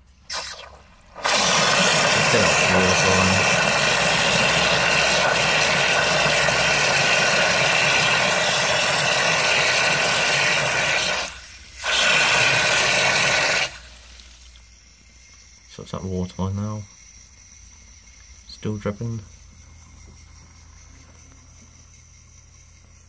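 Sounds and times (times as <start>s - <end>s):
water hissing into cistern: 0.0s - 16.3s.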